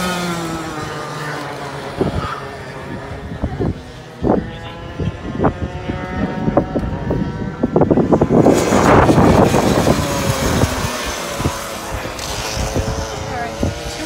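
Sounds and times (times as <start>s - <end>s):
kart engines at high revs: 0.0s - 14.0s.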